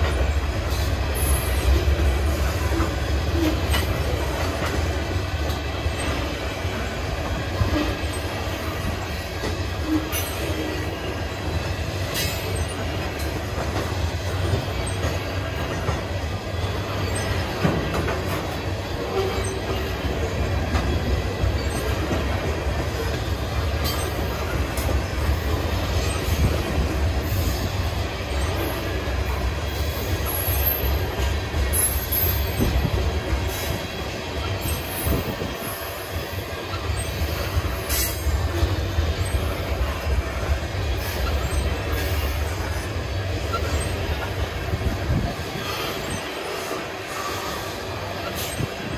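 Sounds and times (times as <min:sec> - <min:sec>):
train wheels rumbling on rail: 0:00.0 - 0:48.9
high wheel squeals: 0:07.6 - 0:13.6, 0:16.6 - 0:44.7.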